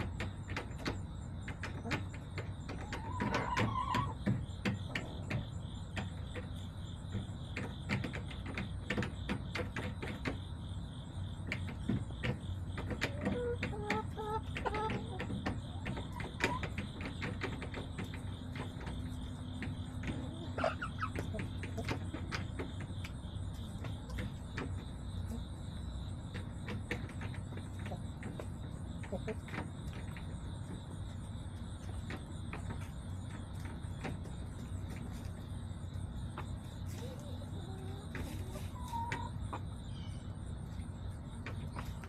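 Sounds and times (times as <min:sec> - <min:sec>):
hens clucking: 0:00.0 - 0:42.0
hens pecking taps: 0:00.0 - 0:42.0.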